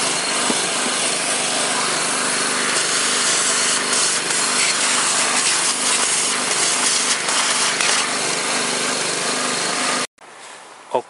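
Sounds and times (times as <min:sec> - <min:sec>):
vacuum cleaner humming: 0:00.0 - 0:10.1.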